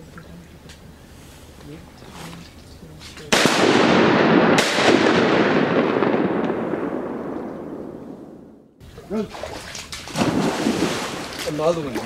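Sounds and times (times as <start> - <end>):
shotgun shots echoing: 3.3 - 8.6.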